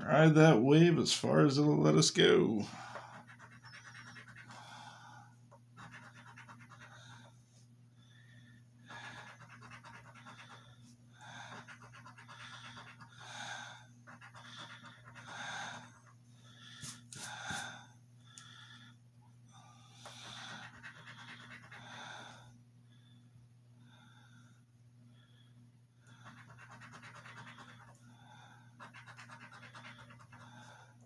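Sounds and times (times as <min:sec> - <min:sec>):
coin scraping lottery ticket: 0:03.1 - 0:04.5.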